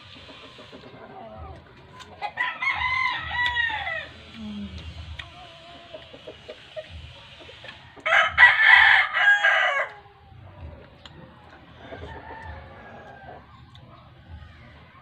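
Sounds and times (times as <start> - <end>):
rooster crowing: 2.3 - 4.2, 8.0 - 10.0, 11.8 - 13.5.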